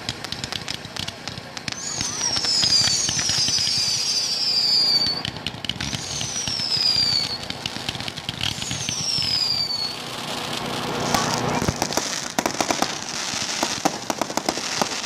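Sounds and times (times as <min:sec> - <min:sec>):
firework pops and crackles: 0:00.0 - 0:15.0
firework whistles falling in pitch: 0:00.0 - 0:15.0.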